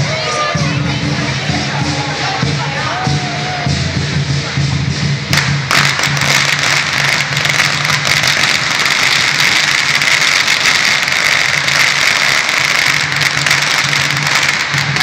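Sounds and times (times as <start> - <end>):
firecrackers crackling: 0.0 - 15.0.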